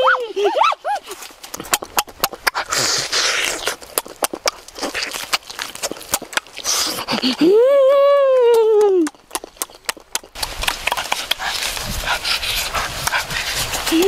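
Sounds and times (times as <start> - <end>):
wet eating sounds: 0.3 - 14.0
person exclaiming: 7.4 - 9.1.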